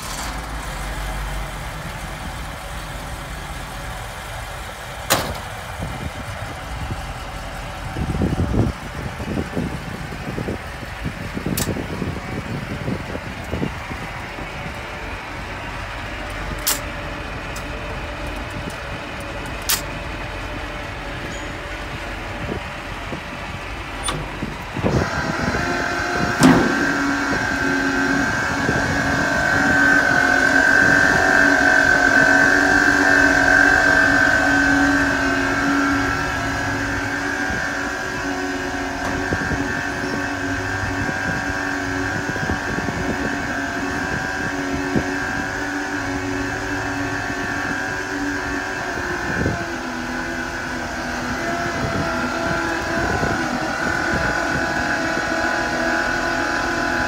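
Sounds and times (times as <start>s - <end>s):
fuel pump whining: 0.0s - 57.0s
sharp metallic clank: 5.1s - 5.5s.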